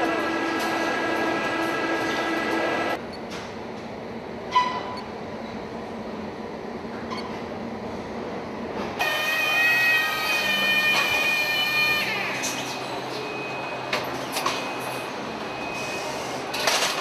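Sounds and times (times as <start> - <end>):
machine hum with whining tones: 0.0 - 17.0
loud multi-tone whine: 9.0 - 16.2.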